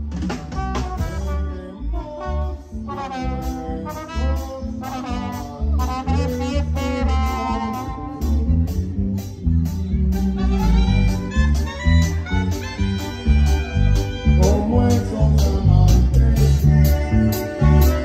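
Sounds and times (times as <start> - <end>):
quick percussion beat: 0.0 - 1.3
heavy bass: 0.0 - 18.0
trumpets playing melody: 0.2 - 9.3, 10.1 - 18.0.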